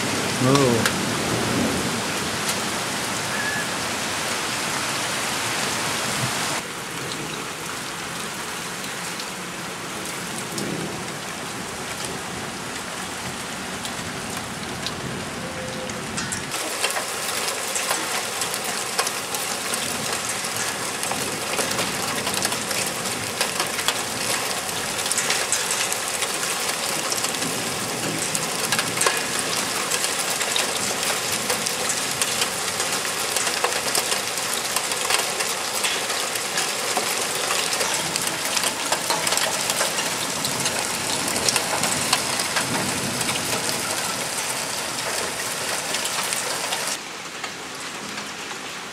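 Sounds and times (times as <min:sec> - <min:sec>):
hailstone ticks: 0:16.2 - 0:44.2
heavy hail hissing: 0:16.5 - 0:47.0.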